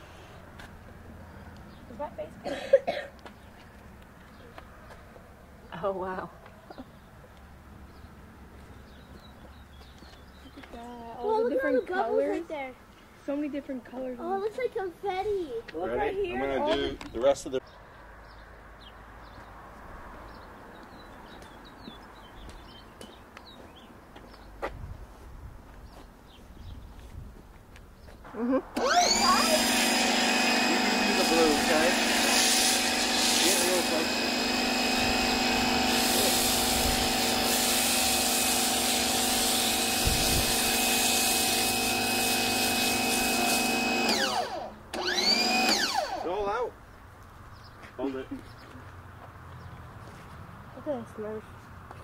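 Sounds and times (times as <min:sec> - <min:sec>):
small birds chirping: 0:00.0 - 0:02.4, 0:03.2 - 0:14.7, 0:16.3 - 0:24.7, 0:25.8 - 0:28.3, 0:46.3 - 0:51.7
low outdoor background noise: 0:00.0 - 0:29.5, 0:44.0 - 0:52.0
pressure washer motor whining: 0:28.7 - 0:46.5
hiss of spray: 0:35.9 - 0:43.7.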